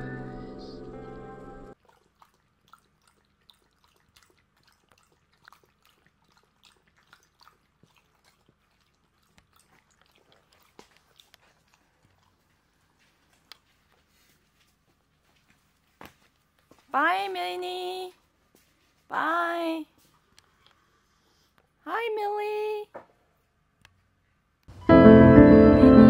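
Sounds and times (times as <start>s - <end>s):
dog lapping water: 1.8s - 13.8s.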